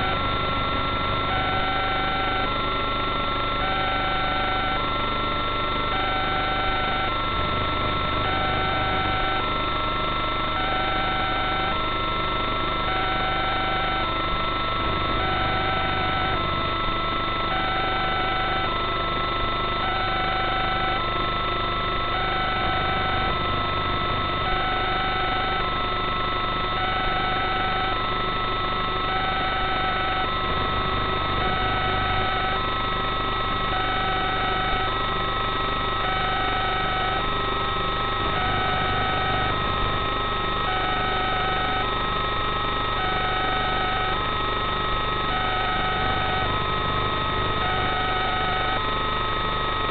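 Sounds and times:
pulsing electronic tone pattern: 0:00.0 - 0:02.6, 0:12.4 - 0:18.7
electrical hum and whining tones: 0:00.0 - 0:49.9.

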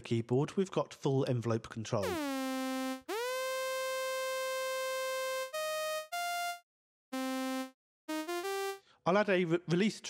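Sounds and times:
buzzy synth tone: 0:02.0 - 0:06.6.

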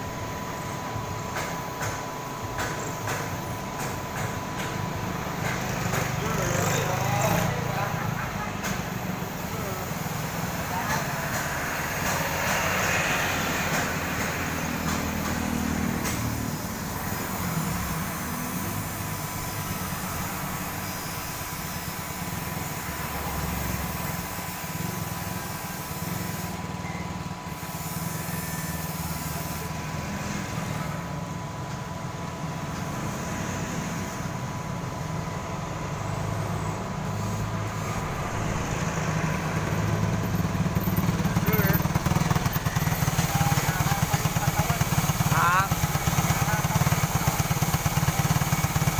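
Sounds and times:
road traffic passing: 0:00.0 - 0:48.9
atv engine approaching: 0:05.6 - 0:09.5, 0:36.0 - 0:48.9.

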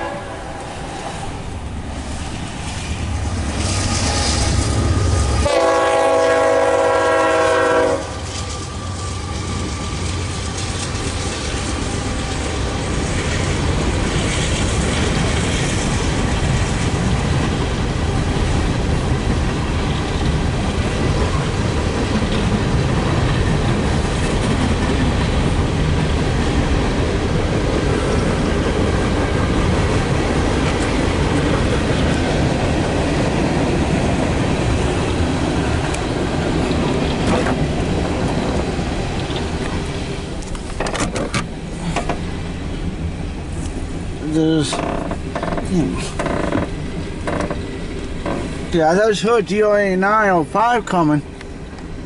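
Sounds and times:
locomotive horn chord: 0:00.0 - 0:00.7, 0:05.4 - 0:08.2
train cars rumbling and clattering: 0:00.0 - 0:52.0.

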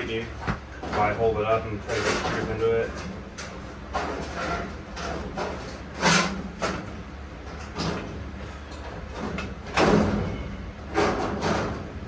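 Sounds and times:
steady low hum: 0:00.0 - 0:12.0
sheet metal scraping and rattling: 0:00.8 - 0:06.9.

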